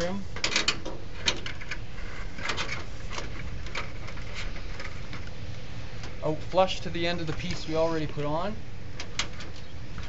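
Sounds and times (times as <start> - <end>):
sheet metal clicking and scraping: 0.0 - 6.2, 9.0 - 10.0.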